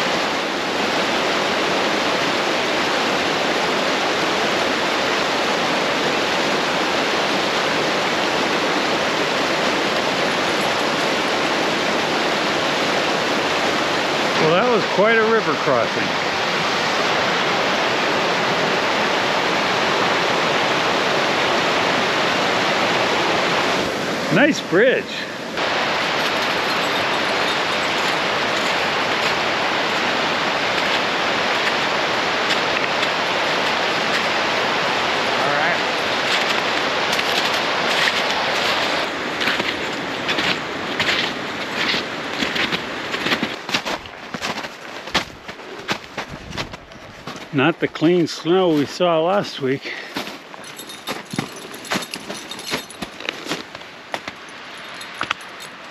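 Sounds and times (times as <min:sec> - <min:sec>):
brook rushing: 0:24.2 - 0:55.4.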